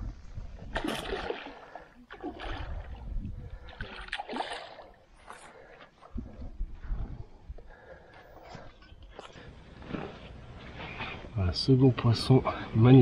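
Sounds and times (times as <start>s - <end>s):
fish splashing at water surface: 3.7s - 5.0s.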